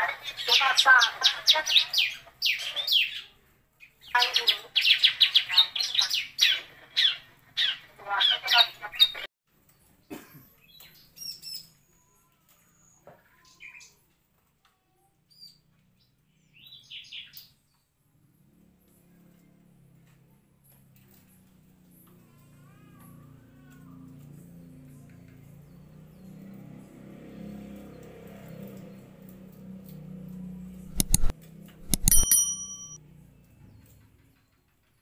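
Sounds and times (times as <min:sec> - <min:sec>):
faint bird chirps: 0:10.4 - 0:14.0.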